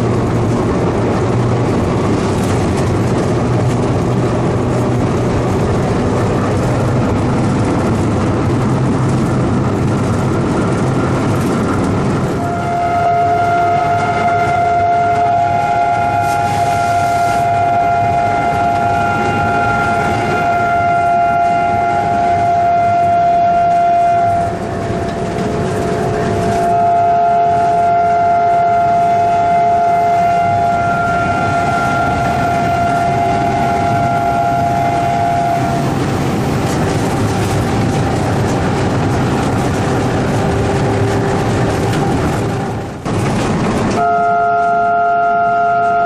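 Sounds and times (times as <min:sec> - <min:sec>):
locomotive engine and wheels running: 0:00.0 - 0:46.0
locomotive air horn blasts: 0:12.2 - 0:36.4, 0:43.9 - 0:46.0.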